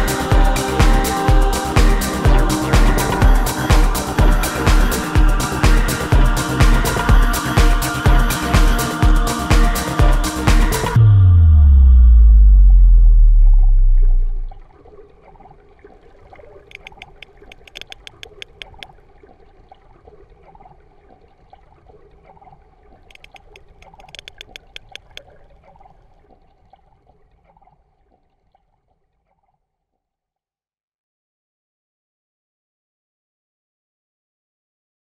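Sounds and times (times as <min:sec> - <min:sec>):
music: 0:00.0 - 0:12.7
faint watery background: 0:00.0 - 0:30.9
sperm whale clicking: 0:14.5 - 0:29.6.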